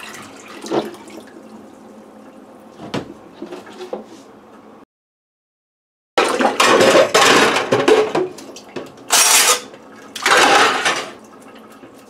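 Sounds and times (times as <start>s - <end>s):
dishes clattering and splashing in sink: 0.0s - 1.3s, 6.2s - 12.0s.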